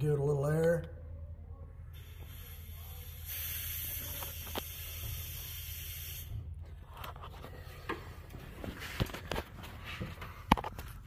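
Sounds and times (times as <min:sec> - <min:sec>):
low steady hum: 0:00.0 - 0:03.4
compressed air hissing: 0:02.0 - 0:06.6.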